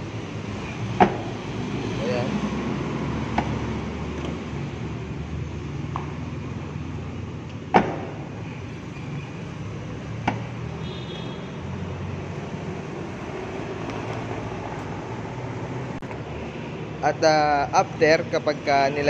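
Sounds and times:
car door slamming: 0.9s - 1.4s, 7.6s - 8.4s.

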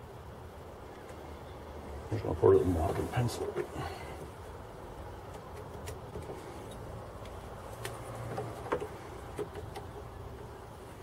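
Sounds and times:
faint steady low hum: 0.0s - 11.0s
hand tools tapping on wood: 7.2s - 10.5s.

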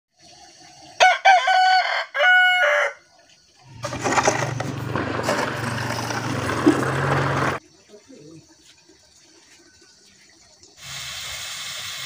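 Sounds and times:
rooster crowing: 1.0s - 3.1s.

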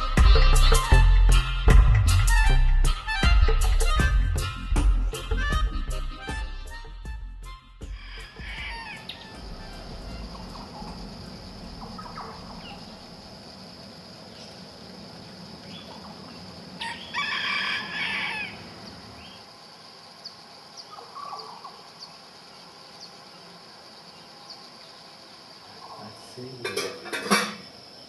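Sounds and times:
high-pitched insect hum: 0.0s - 7.0s, 7.8s - 28.0s
rooster crowing: 7.9s - 11.1s, 16.7s - 19.0s.

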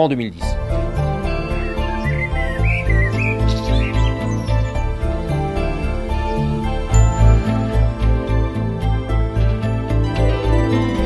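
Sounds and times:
music with pulsing bass beat: 0.6s - 11.0s
birds chirping: 0.9s - 7.8s.

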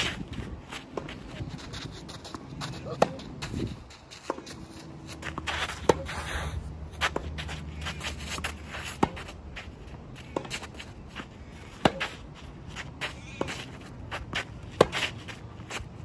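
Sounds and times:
shoes scuffing on clay: 0.0s - 16.0s
racket hitting tennis ball: 2.2s - 6.2s, 6.9s - 10.9s, 11.5s - 15.8s.

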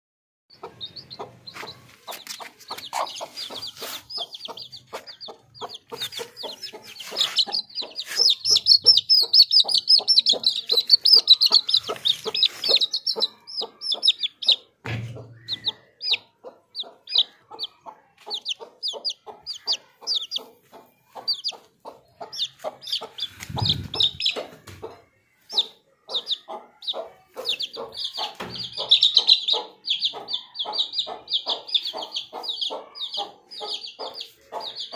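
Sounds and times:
chicks peeping: 0.5s - 34.9s
hen clucking: 0.5s - 34.9s
low thumps: 23.3s - 24.4s.

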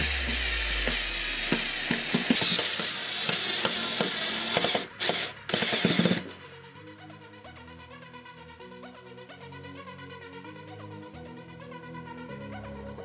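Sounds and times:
drill driving screws into wood: 0.0s - 6.5s.

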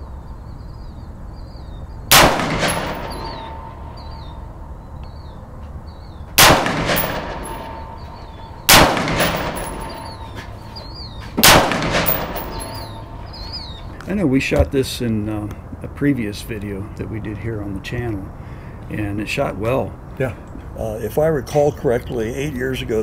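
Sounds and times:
rifle shots with echo: 2.1s - 4.4s, 6.4s - 10.6s, 11.4s - 13.8s.

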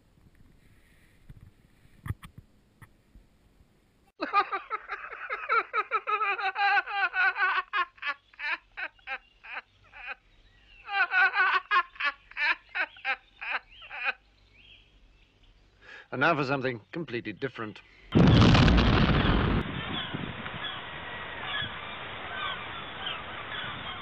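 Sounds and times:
person laughing: 4.2s - 10.2s, 10.8s - 14.2s.

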